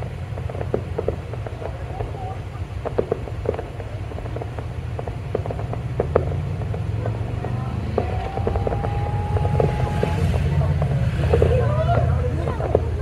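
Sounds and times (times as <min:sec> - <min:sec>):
fireworks popping and crackling: 0:00.0 - 0:13.0
low rumble: 0:00.0 - 0:13.0.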